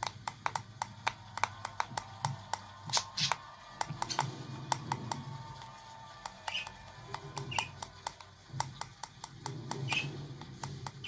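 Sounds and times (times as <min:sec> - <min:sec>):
faint background music: 0:00.0 - 0:11.0
beak tapping on glass mirror: 0:06.2 - 0:11.0.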